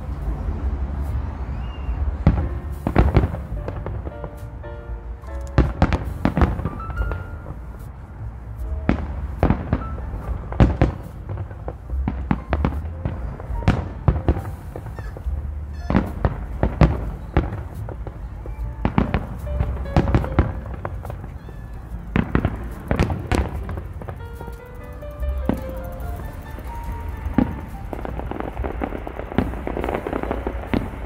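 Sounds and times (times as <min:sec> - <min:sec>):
steady low rumble: 0:00.0 - 0:31.0
firework shells bursting: 0:18.8 - 0:31.0.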